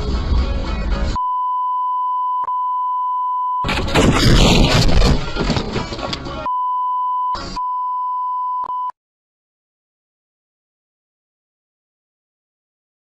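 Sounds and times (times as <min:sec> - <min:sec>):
high censor beep: 0:01.2 - 0:03.7, 0:06.5 - 0:09.0.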